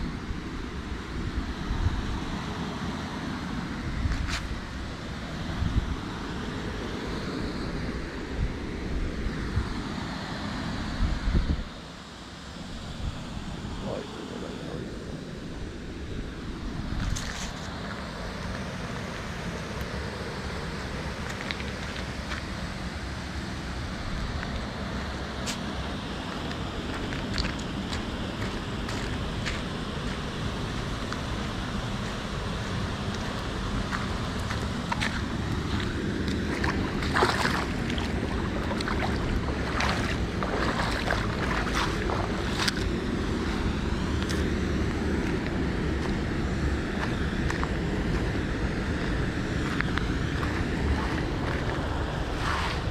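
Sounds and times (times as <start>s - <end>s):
water rushing: 0.0s - 52.9s
footsteps on gravel: 26.3s - 30.3s, 33.1s - 43.6s, 49.6s - 51.8s
footsteps splashing through river: 26.3s - 46.3s, 49.4s - 52.9s.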